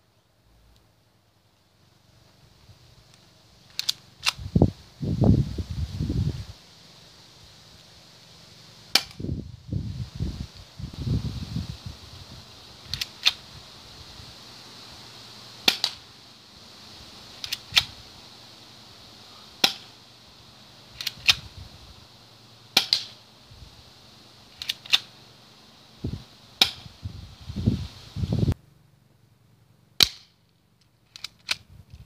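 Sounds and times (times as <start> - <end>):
airsoft pistol shots: 8.9 - 9.2, 15.6 - 16.0, 19.6 - 19.9, 22.8 - 23.2, 26.6 - 26.9, 30.0 - 30.4.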